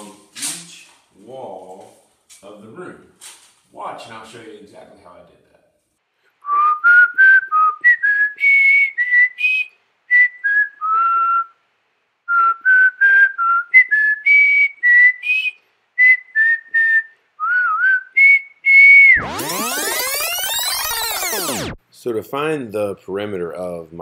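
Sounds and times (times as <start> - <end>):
whistled melody with music: 6.5 - 11.5, 12.3 - 21.5.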